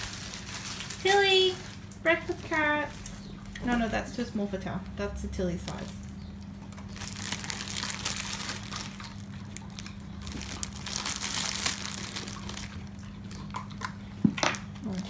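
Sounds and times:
dog crunching carrot: 0:05.7 - 0:15.0.

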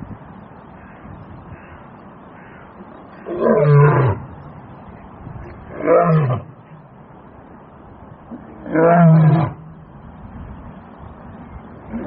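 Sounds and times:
lion roaring: 0:08.4 - 0:09.6.

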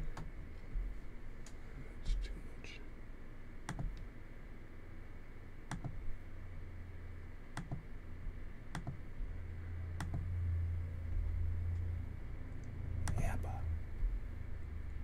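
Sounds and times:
steady low hum: 0:00.0 - 0:15.0
computer mouse clicks: 0:03.7 - 0:04.1, 0:05.7 - 0:06.0, 0:07.6 - 0:07.8, 0:08.7 - 0:09.0, 0:10.0 - 0:10.3, 0:12.6 - 0:13.2.

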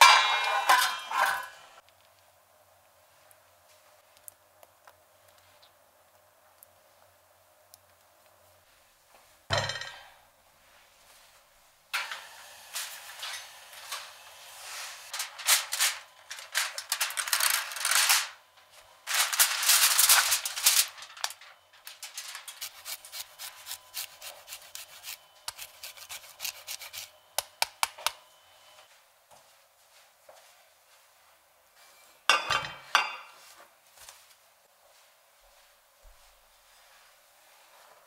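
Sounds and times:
metal pan thump: 0:00.0 - 0:01.5, 0:09.5 - 0:10.1
aluminium foil crinkling: 0:14.6 - 0:27.1.

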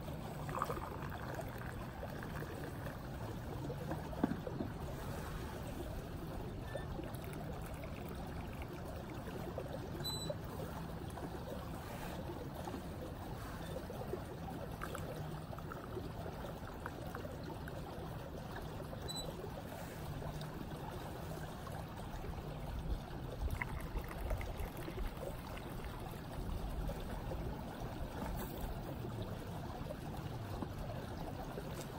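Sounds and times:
water trickling into a glass: 0:00.0 - 0:04.9, 0:06.2 - 0:20.6, 0:21.2 - 0:31.9.

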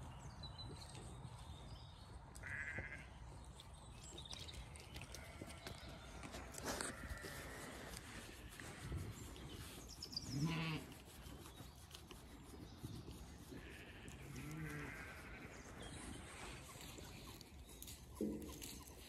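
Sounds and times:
sheep bleating: 0:02.4 - 0:03.0, 0:10.3 - 0:11.0, 0:13.5 - 0:15.6.

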